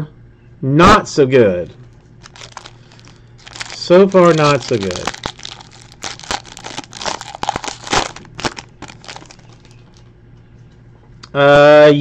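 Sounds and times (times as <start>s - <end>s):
foil wrapper crinkling and tearing: 2.2s - 10.0s.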